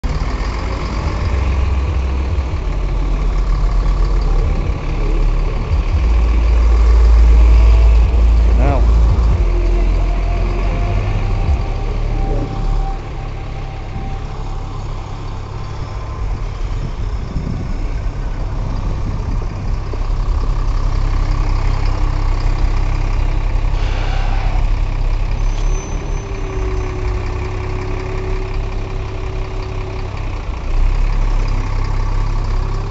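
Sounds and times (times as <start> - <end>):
low engine rumble: 0.0 - 32.9
road traffic: 0.0 - 32.9.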